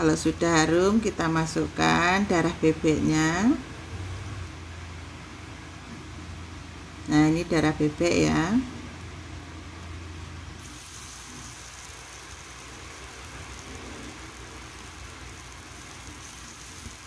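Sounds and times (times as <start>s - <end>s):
steady low hum: 0.0s - 17.0s
food sizzling in hot oil: 10.6s - 17.0s.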